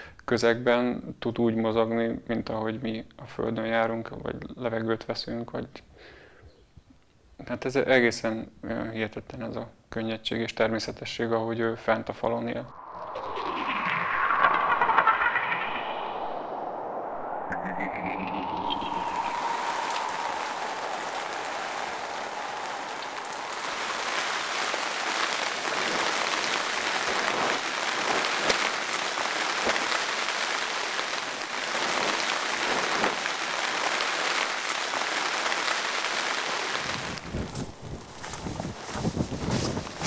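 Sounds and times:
rain pattering: 17.3s - 40.0s.

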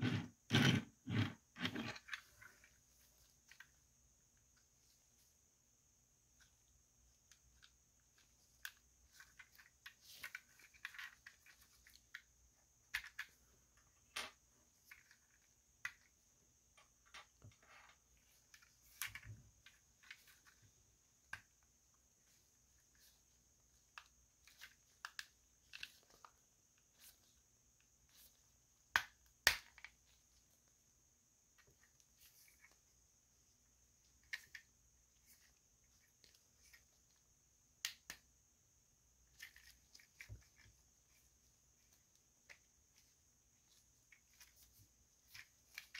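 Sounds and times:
rubbing of plastic parts: 0.0s - 5.2s, 6.3s - 16.2s, 39.2s - 45.9s.

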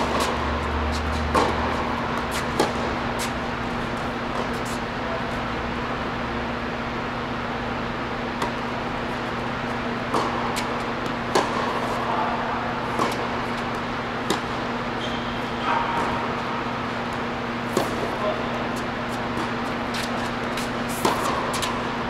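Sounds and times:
tennis racket strikes: 0.0s - 3.6s, 9.7s - 12.0s, 12.9s - 21.9s
tennis ball bouncing: 0.0s - 5.0s, 8.0s - 22.0s
steady low hum: 0.0s - 22.0s
shoe squeaks: 15.0s - 15.9s.

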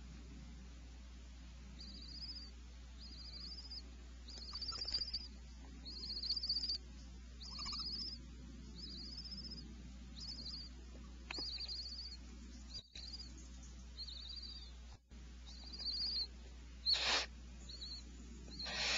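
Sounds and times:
low electrical hum: 0.0s - 18.9s
owl chick begging call: 1.8s - 6.8s, 7.4s - 9.6s, 10.2s - 13.4s, 14.0s - 14.8s, 15.4s - 18.9s.

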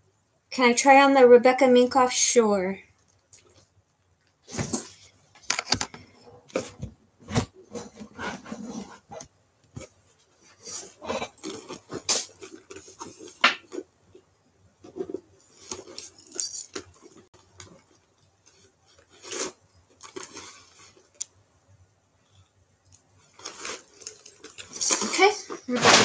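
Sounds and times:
metal chain strap clinking: 15.9s - 17.0s, 24.0s - 25.3s.

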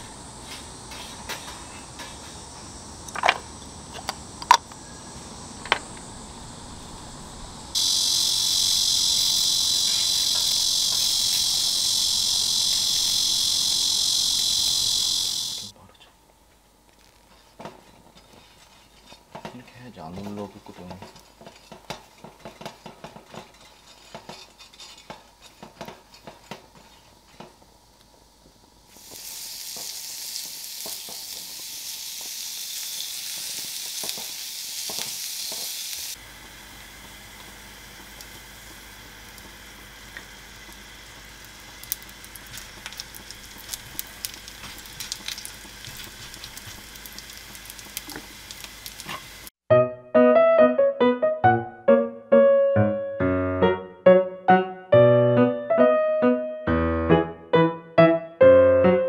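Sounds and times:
meat sizzling on grill pan: 7.8s - 15.7s, 28.9s - 49.5s
patties frying with pops: 7.8s - 15.8s, 16.5s - 49.5s
brush tapping grill pan: 17.3s - 27.6s, 41.8s - 49.3s.

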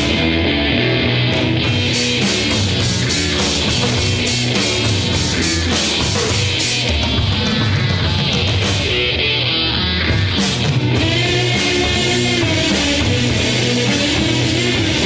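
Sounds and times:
electric guitar riff: 0.0s - 15.0s
steady drum beat: 1.4s - 15.0s.

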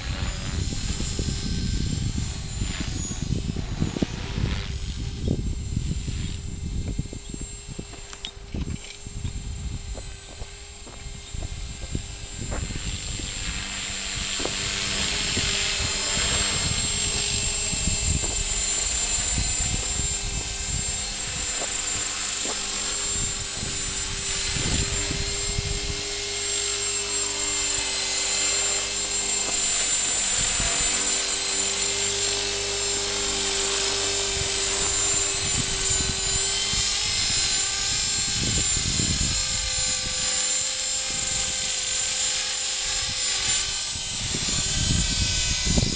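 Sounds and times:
rc helicopter rotor whine: 0.0s - 45.9s
wind buffeting microphone: 0.0s - 45.9s.

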